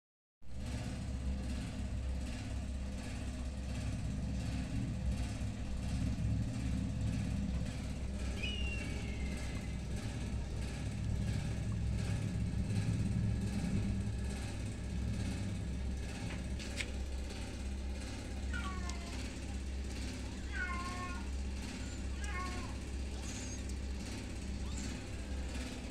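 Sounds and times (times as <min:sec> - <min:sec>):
low mechanical rumble: 0:00.5 - 0:25.9.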